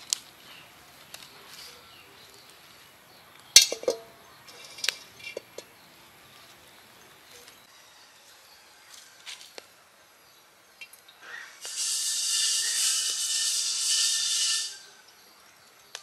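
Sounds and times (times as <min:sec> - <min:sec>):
wok clinking and knocking: 0:03.6 - 0:05.7
metal wok clanking on stones: 0:03.6 - 0:05.8.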